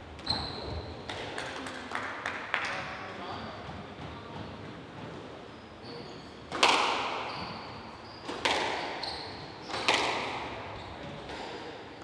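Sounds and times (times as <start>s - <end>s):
shoe squeaks on wooden floor: 0.2s - 1.1s, 5.5s - 6.5s, 7.2s - 9.9s.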